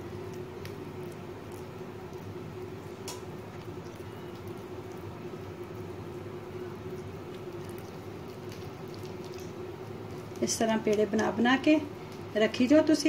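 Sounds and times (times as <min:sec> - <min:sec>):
steady low hum: 0:00.0 - 0:13.0
sticky clicks of hands kneading dough: 0:00.1 - 0:05.9, 0:06.8 - 0:11.4.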